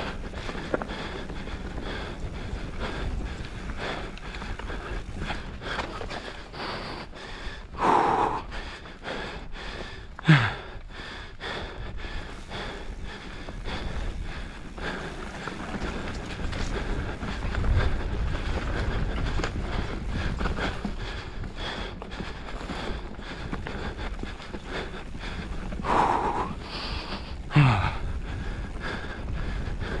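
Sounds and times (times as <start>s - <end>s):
rider breathing hard: 0.0s - 30.0s
wind rush: 12.0s - 30.0s.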